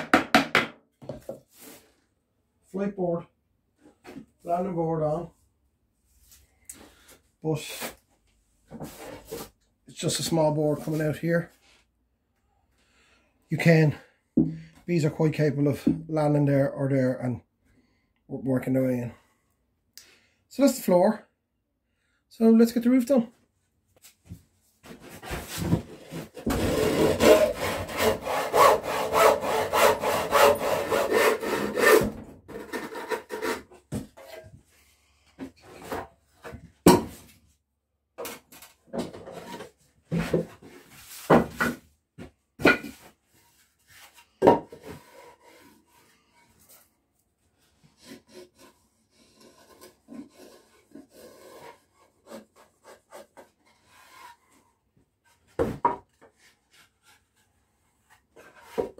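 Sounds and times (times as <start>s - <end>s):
boards knocking on workbench: 0.0s - 1.4s, 44.4s - 44.8s, 55.6s - 56.0s
handsaw cutting wood: 26.4s - 33.7s, 48.0s - 54.3s.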